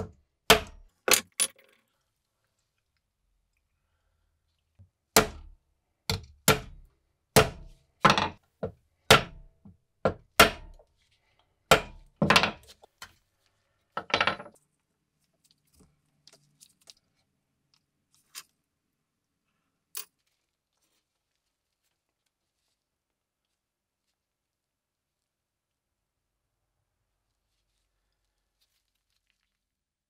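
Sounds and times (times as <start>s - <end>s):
hammer striking pin punch: 7.4s - 8.3s, 11.7s - 12.4s.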